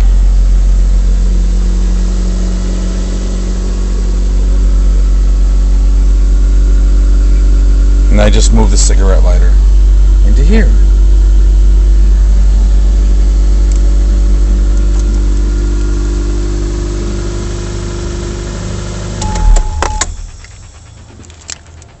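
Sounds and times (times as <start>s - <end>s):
car engine idling: 0.0s - 22.0s
sharp clicks of engine shutdown: 13.6s - 14.0s, 19.1s - 22.0s.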